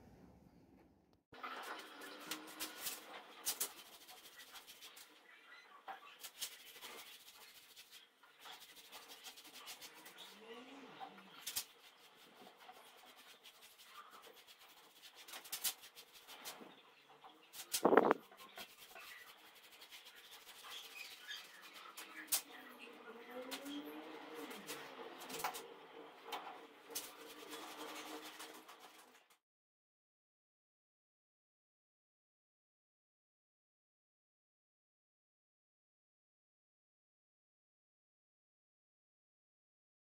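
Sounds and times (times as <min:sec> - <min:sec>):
paintbrush rubbing on wall: 0:01.7 - 0:05.2, 0:06.0 - 0:16.7, 0:17.5 - 0:25.6, 0:26.6 - 0:29.2.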